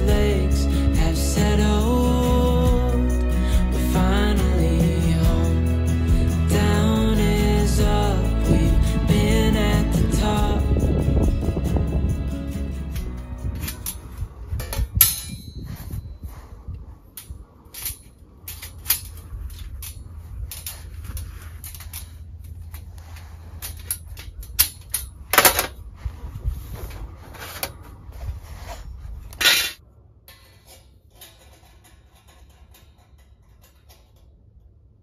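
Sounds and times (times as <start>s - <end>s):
steel panels clinking and clanking: 12.6s - 16.0s, 17.1s - 25.9s, 29.3s - 35.0s.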